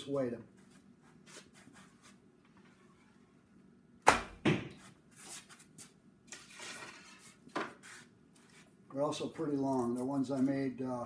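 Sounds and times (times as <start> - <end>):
arrow striking target: 4.0 - 4.7.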